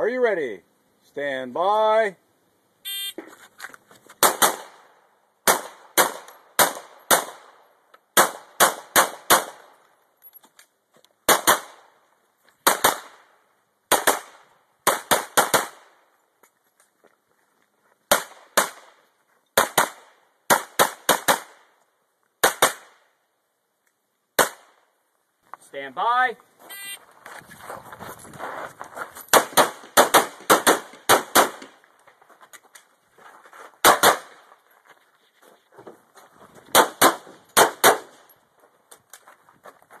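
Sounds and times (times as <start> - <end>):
handgun shots in quick pairs: 4.2 - 9.7, 11.3 - 11.9, 12.6 - 13.2, 13.9 - 15.9, 18.1 - 19.0, 19.6 - 21.6, 22.4 - 23.0, 24.4 - 24.8, 29.3 - 31.8, 33.8 - 34.4, 36.7 - 38.3.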